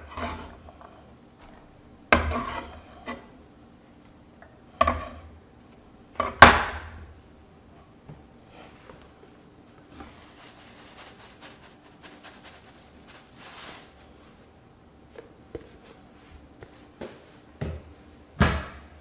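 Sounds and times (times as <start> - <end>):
soft rustles: 9.9 - 14.5.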